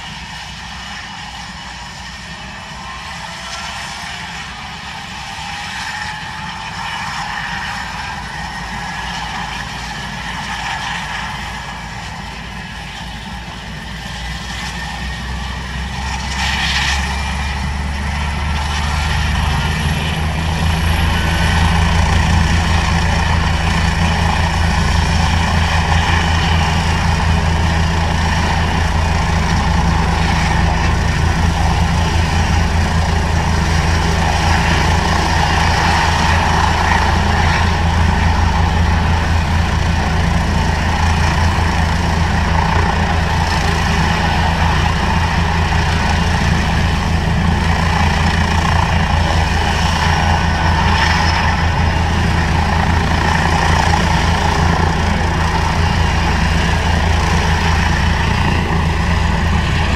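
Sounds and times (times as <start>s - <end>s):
engine idling: 17.4s - 59.9s.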